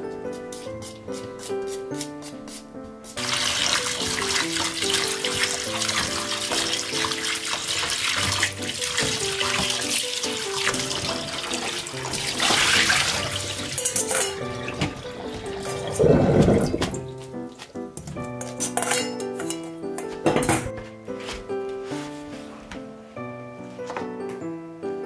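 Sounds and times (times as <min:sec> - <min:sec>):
light background music: 0:00.0 - 0:25.0
water running from tap: 0:03.2 - 0:17.5.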